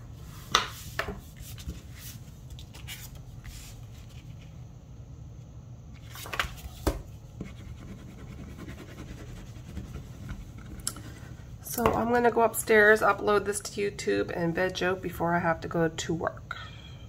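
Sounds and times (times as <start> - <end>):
paper rustling and scraping: 0.3 - 4.6, 6.0 - 7.0.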